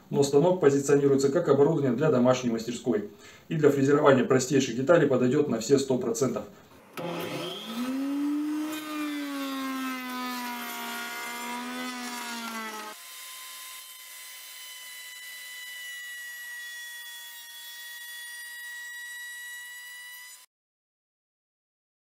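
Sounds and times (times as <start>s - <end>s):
router motor whine: 6.8s - 15.8s
router cutter milling wood: 6.8s - 20.4s.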